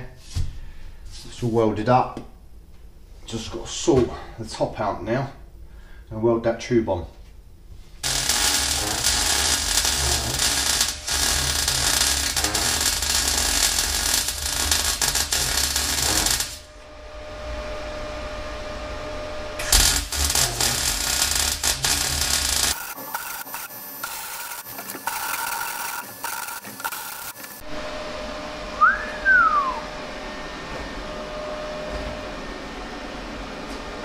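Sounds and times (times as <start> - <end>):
welding arc crackling: 8.0 - 16.7, 19.6 - 27.6
rising and falling whistle: 28.8 - 30.1.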